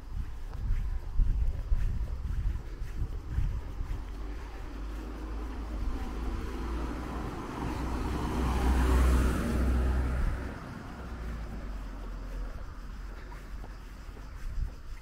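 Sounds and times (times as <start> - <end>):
wind rumble on microphone: 0.0 - 15.0
car driving past: 4.0 - 13.4.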